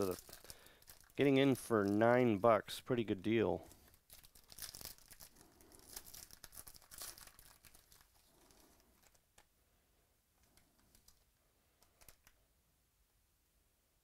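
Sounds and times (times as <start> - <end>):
plastic wrapper tearing and crinkling: 0.0 - 2.0, 3.7 - 9.5
faint clicks of cards handled: 8.0 - 9.6, 10.4 - 12.4.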